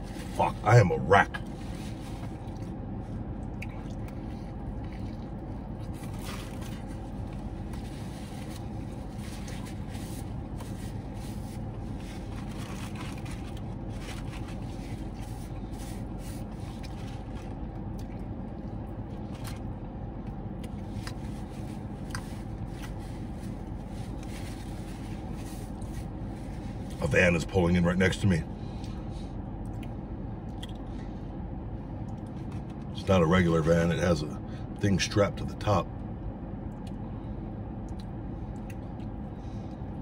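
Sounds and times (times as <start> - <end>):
car idling hum: 0.0 - 40.0
person chewing: 1.4 - 27.0, 28.8 - 31.0.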